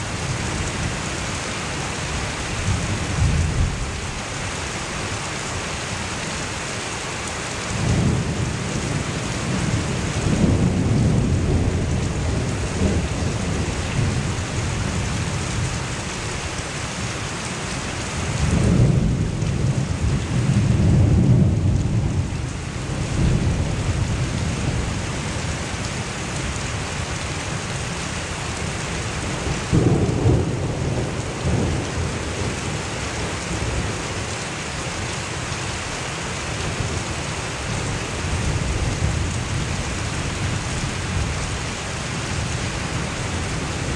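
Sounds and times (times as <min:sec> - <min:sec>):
heavy rain downpour: 0:00.0 - 0:43.9
thunder rumbling: 0:07.7 - 0:15.6, 0:18.3 - 0:25.6, 0:29.2 - 0:34.0.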